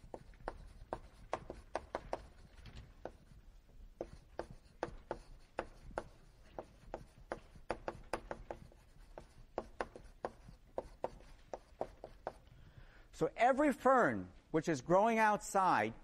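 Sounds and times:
writing taps on board: 0:00.1 - 0:02.4, 0:04.0 - 0:12.4.

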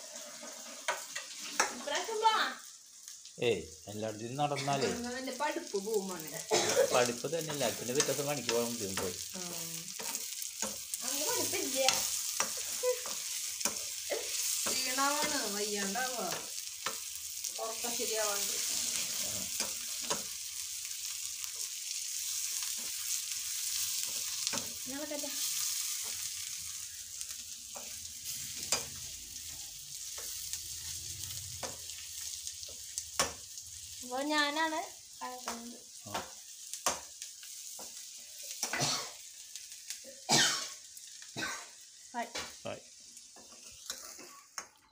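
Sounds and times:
spoon scraping a pan: 0:00.0 - 0:02.0, 0:07.5 - 0:33.5, 0:43.3 - 0:44.8
spices sizzling in oil: 0:00.0 - 0:44.9.

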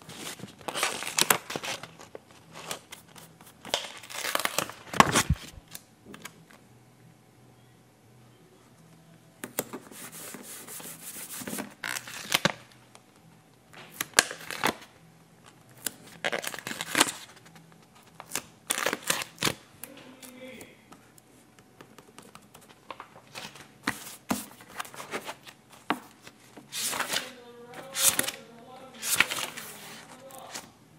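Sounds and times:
paper crinkling and rustling: 0:00.0 - 0:06.3, 0:15.9 - 0:19.6, 0:22.2 - 0:30.7.

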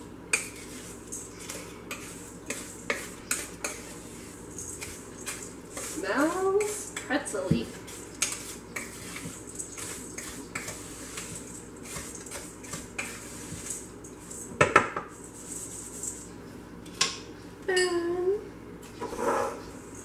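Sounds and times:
spoon scraping metal bowl: 0:00.3 - 0:14.5, 0:19.0 - 0:19.7.

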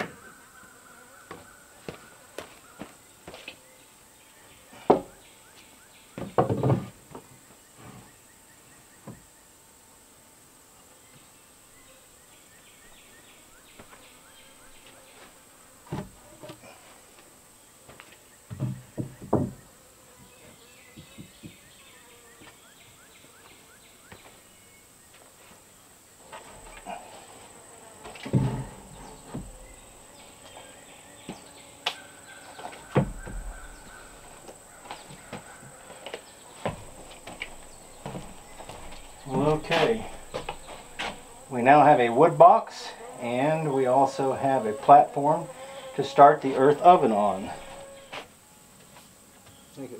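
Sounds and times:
footsteps on wooden floor: 0:01.3 - 0:03.6, 0:17.9 - 0:19.6, 0:26.3 - 0:29.9, 0:32.5 - 0:41.5
high insect drone: 0:09.0 - 0:49.9.

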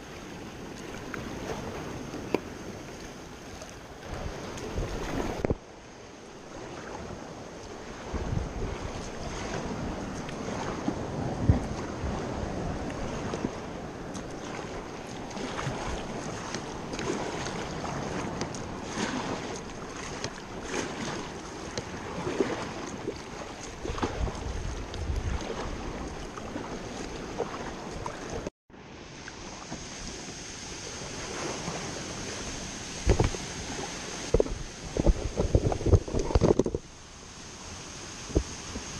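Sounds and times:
wind buffeting microphone: 0:00.0 - 0:05.7, 0:06.5 - 0:28.5, 0:31.0 - 0:37.0
paddle splashing and dripping water: 0:00.0 - 0:28.5, 0:29.1 - 0:38.9
sea lapping around hull: 0:00.0 - 0:38.9.

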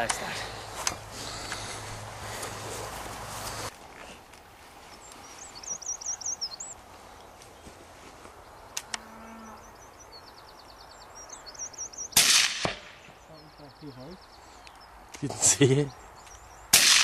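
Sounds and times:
songbird warbling: 0:04.9 - 0:07.4, 0:08.5 - 0:12.3
sharp clicks: 0:08.7 - 0:09.0.

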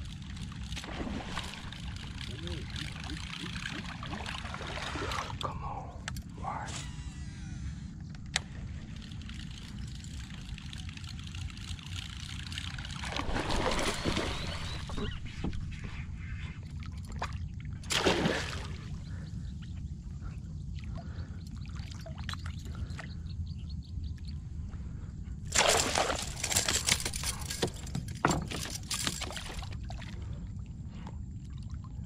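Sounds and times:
fish thrashing and splashing: 0:00.2 - 0:05.4, 0:09.0 - 0:15.2, 0:25.5 - 0:30.0.

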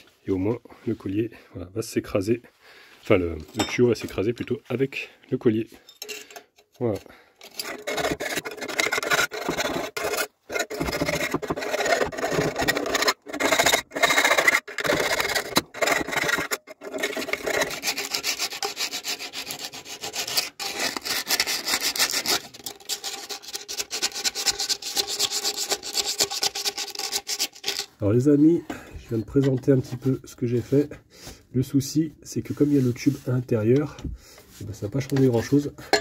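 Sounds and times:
hand file rasping on metal pipe: 0:07.4 - 0:28.0.

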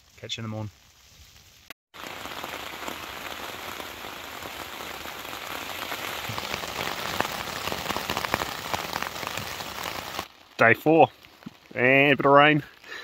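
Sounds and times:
close raindrops striking: 0:00.0 - 0:13.0
steady rain falling: 0:00.0 - 0:13.0.

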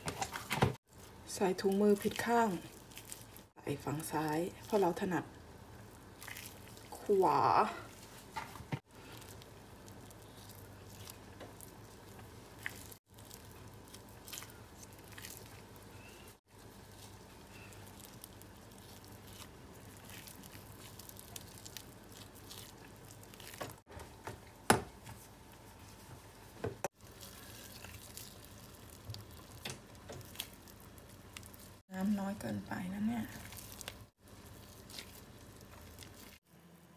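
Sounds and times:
faint squishing: 0:00.0 - 0:36.9.

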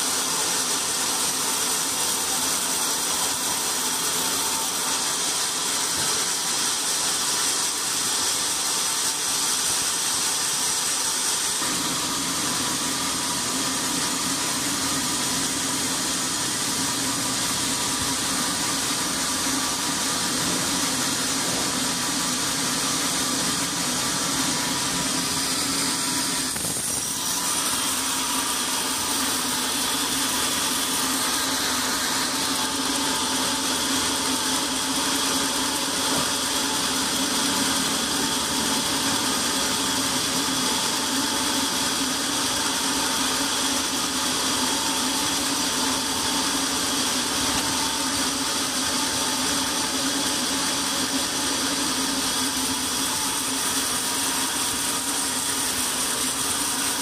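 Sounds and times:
band saw drone with high whine: 0:11.4 - 0:57.0.

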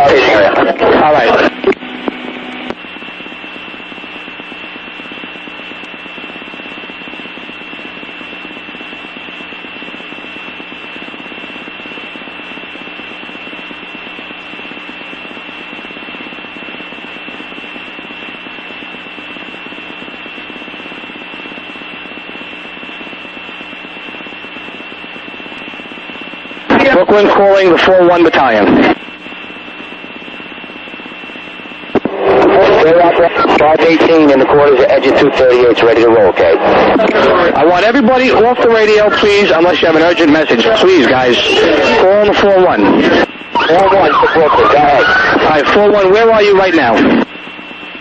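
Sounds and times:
high whine: 0:00.0 - 0:48.0
radio static hiss: 0:00.0 - 0:48.0.

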